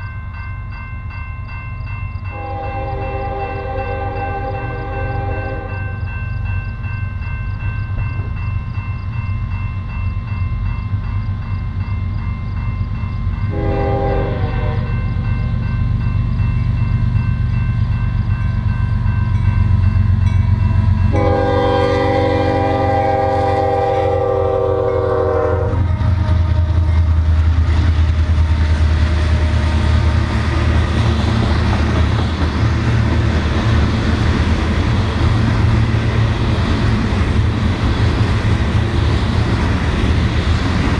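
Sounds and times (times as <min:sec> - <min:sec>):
crossing bell ringing: 0:00.0 - 0:27.3
train air horn: 0:02.3 - 0:05.9, 0:13.5 - 0:15.0, 0:21.1 - 0:26.9
locomotive engine rumble: 0:11.2 - 0:40.9.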